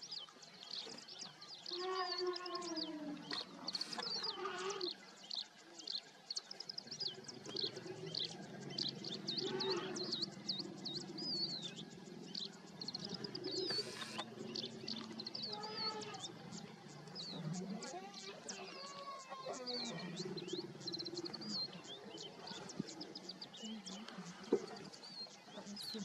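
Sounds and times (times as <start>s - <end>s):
small birds chirping: 0.0s - 26.0s
low bird call: 7.2s - 26.0s.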